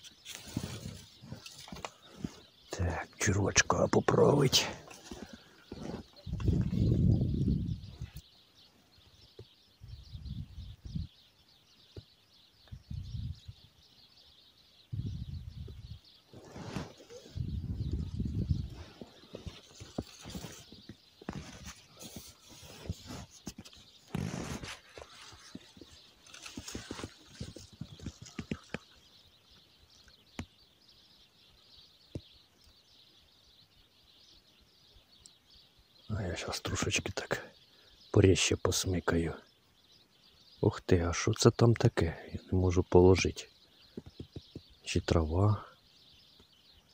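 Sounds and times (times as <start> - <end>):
faint outdoor hiss: 0.0 - 46.9
small birds chirping: 0.0 - 46.9
low microphone rumbles: 5.1 - 8.2, 9.8 - 11.2, 12.7 - 13.7, 14.9 - 21.6
small clicks and crackles: 18.8 - 29.1.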